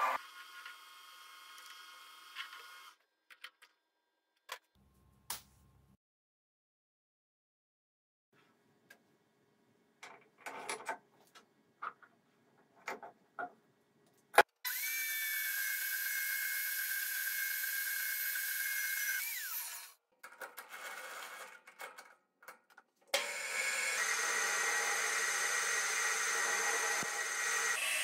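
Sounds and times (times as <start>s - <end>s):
band saw cutting metal rod: 14.7s - 20.0s, 23.2s - 28.0s.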